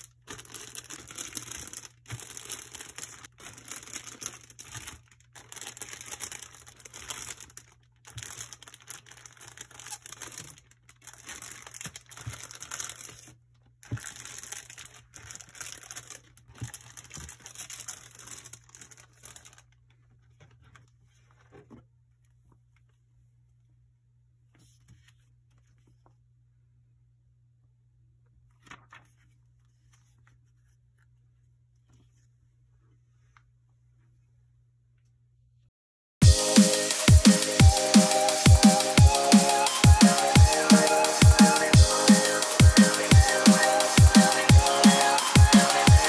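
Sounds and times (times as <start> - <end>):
plastic bags crinkling: 0.0 - 20.9.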